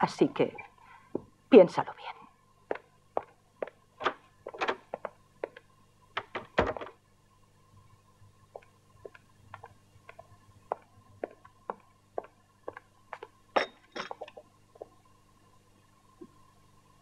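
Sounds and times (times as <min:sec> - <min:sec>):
footsteps crossing a room: 0:02.6 - 0:07.0, 0:08.2 - 0:15.1.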